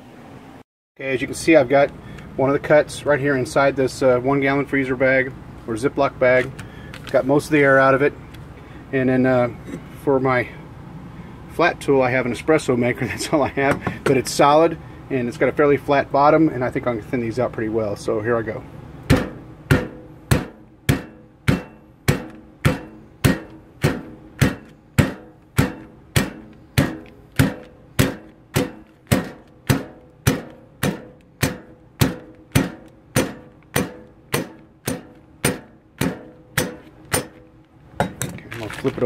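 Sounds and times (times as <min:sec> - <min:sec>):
metal pot pounding meat: 0:19.0 - 0:38.2.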